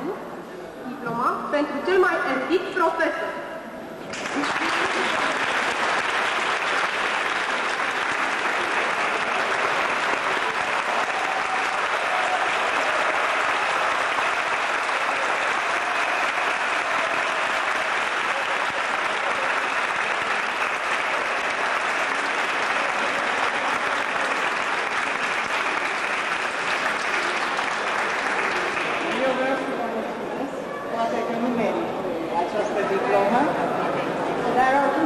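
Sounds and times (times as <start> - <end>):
audience applauding: 4.0 - 29.8.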